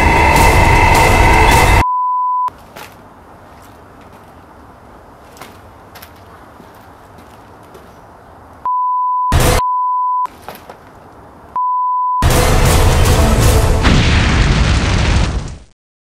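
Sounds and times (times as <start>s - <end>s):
loud music: 0.0s - 1.8s, 12.2s - 13.9s
loud noisy burst: 0.0s - 1.8s.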